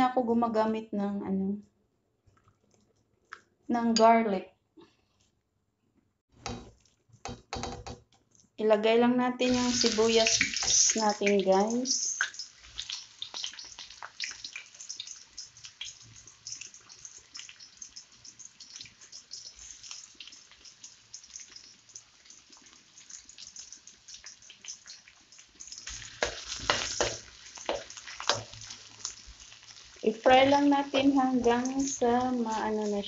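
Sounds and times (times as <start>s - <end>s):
onions sizzling in hot oil: 9.4s - 33.0s
spatula stirring in wok: 12.3s - 33.0s.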